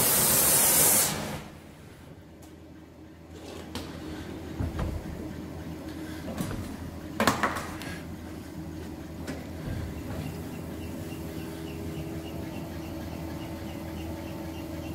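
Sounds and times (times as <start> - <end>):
low machine hum: 1.2 - 14.9
metal clanks and knocks: 4.5 - 5.3.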